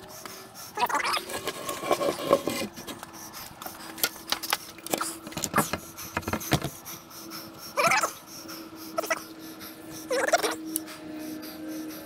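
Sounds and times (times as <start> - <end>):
faint steady hum: 0.0 - 12.0
wooden board knocking and scraping: 5.3 - 6.7.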